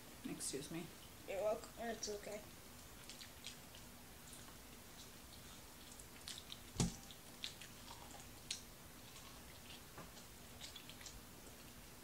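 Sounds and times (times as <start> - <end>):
chewing and biting food: 2.8 - 12.0.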